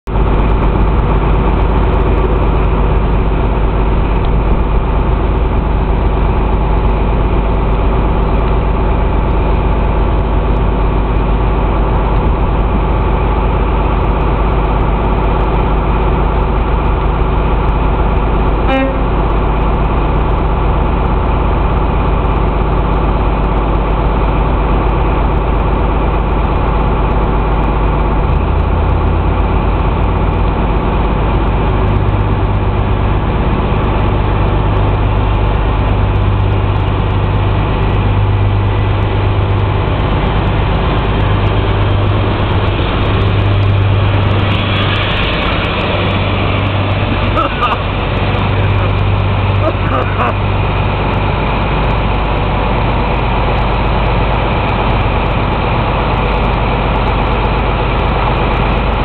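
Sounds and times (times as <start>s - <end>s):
diesel locomotive idling: 0.0s - 59.0s
train horn toot: 18.6s - 19.3s.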